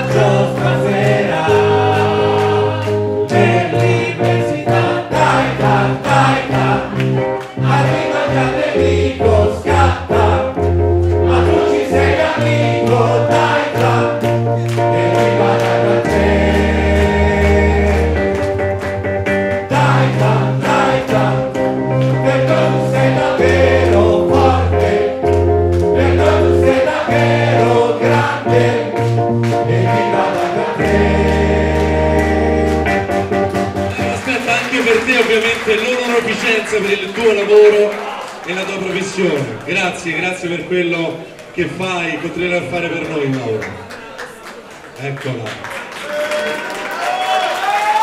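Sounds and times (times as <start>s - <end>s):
man singing into microphone: 0.0s - 6.6s
bass line: 0.0s - 34.3s
steady beat: 0.0s - 34.6s
electronic keyboard: 0.0s - 37.9s.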